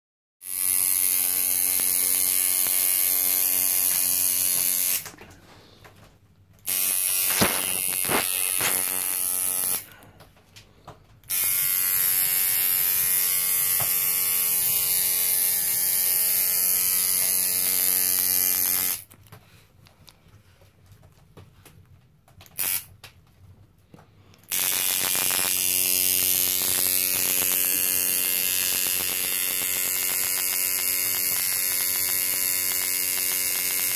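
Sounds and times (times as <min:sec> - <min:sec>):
tattoo machine buzzing: 0:00.4 - 0:05.2, 0:06.6 - 0:10.0, 0:11.2 - 0:19.1, 0:22.5 - 0:22.9, 0:24.4 - 0:33.9.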